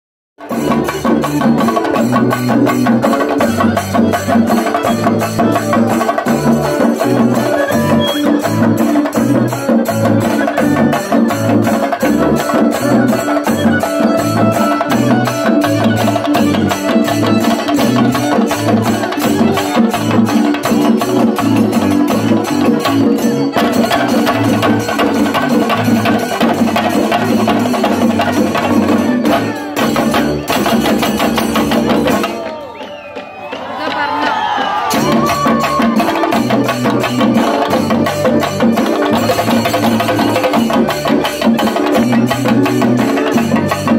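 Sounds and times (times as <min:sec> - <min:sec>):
fast steady drumming: 0:00.4 - 0:43.9
violin playing folk melody: 0:03.4 - 0:30.5.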